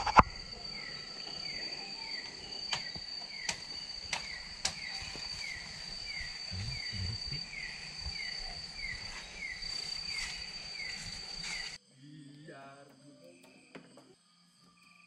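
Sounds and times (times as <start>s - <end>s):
insects droning: 0.0s - 15.0s
sharp clicks: 2.7s - 4.9s.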